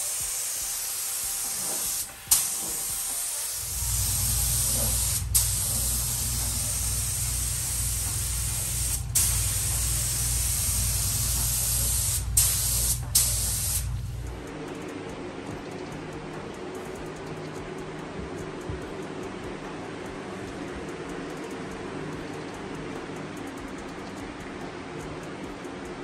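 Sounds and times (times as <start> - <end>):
paint spray gun hissing: 0.0 - 14.4
low hum: 3.6 - 16.7.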